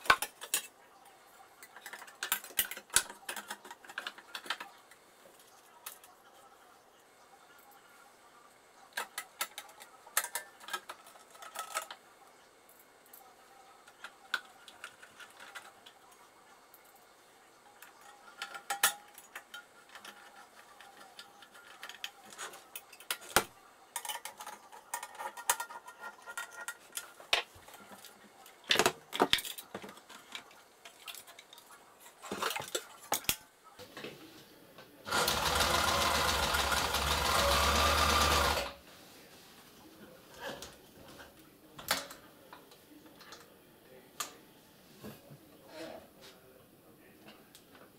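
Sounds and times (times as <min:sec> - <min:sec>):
sewing machine motor running: 0:35.1 - 0:38.8.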